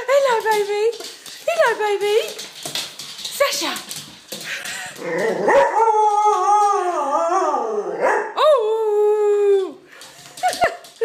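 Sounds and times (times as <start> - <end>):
dog howling: 5.0 - 8.2.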